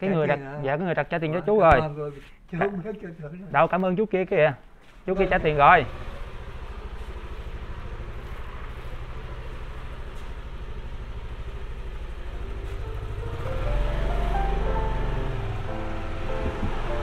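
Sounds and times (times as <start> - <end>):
motorbike rumble: 5.2 - 17.0
background music: 12.2 - 17.0.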